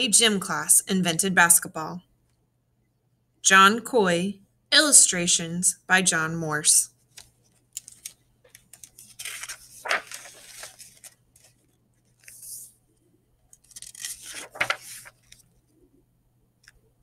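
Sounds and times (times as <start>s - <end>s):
book pages turning: 7.0s - 12.7s, 13.5s - 15.6s
page snapping: 7.1s - 11.2s, 13.6s - 15.4s.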